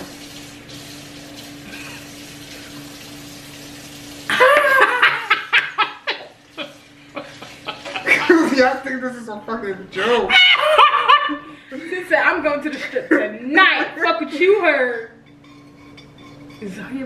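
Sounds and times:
background hiss and hum: 0.0s - 17.0s
woman laughing hard: 4.3s - 8.6s, 10.1s - 11.8s.

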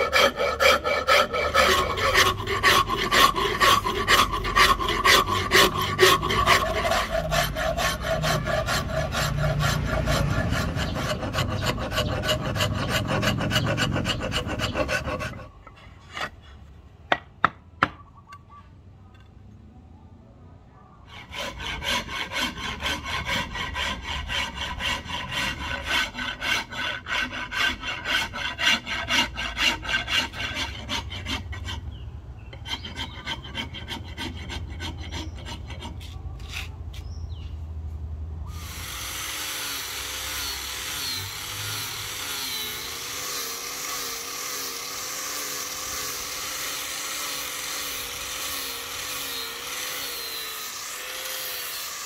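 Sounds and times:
rasp filing wood: 0.0s - 16.6s, 21.1s - 37.2s, 38.6s - 52.0s
small power tool running: 38.5s - 52.0s.

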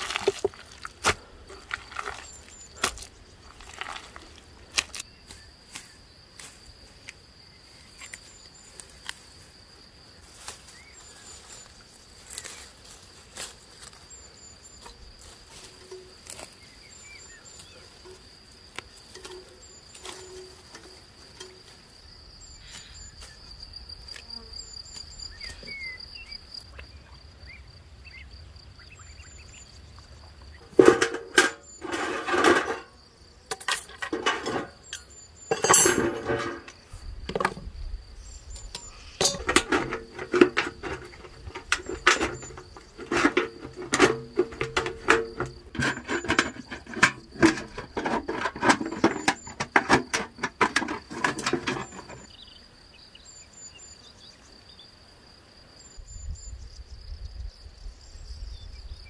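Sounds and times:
metal bucket clanging and scraping: 0.0s - 5.0s, 14.7s - 18.4s, 19.0s - 21.8s, 30.5s - 37.7s, 38.5s - 52.4s
high insect drone with chirps: 0.0s - 59.0s.

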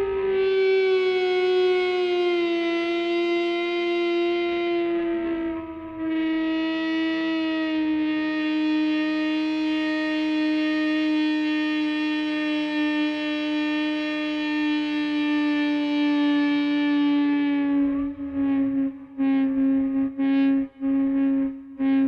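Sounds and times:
synthesizer held note: 16.5s - 22.0s.

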